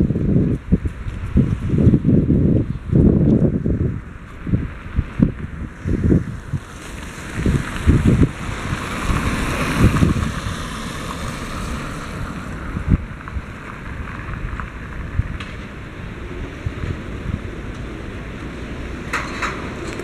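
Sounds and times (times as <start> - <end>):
wind buffeting microphone: 0.0 - 20.0
car passing on wet road: 3.4 - 20.0.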